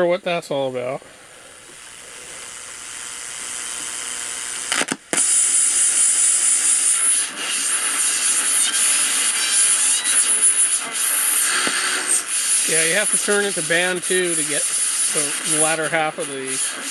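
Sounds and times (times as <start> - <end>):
radio static hiss: 0.0 - 16.9
thin high whine: 0.0 - 16.9.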